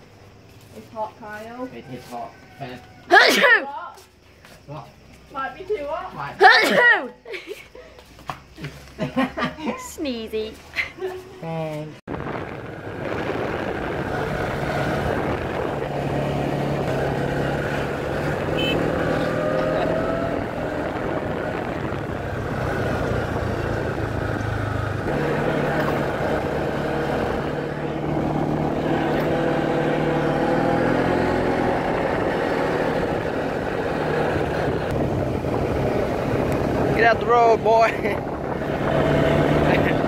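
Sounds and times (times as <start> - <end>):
quad bike engine running: 12.3 - 40.0.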